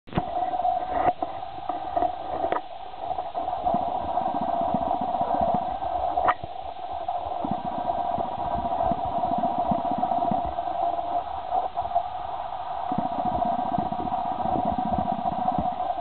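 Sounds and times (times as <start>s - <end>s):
mid-pitched hum: 0.1s - 16.0s
wind buffeting microphone: 12.9s - 16.0s.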